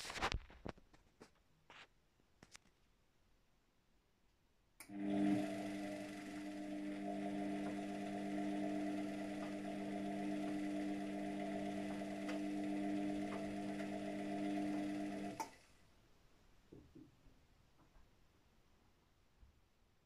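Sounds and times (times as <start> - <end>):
washing machine motor hum: 4.8 - 15.6.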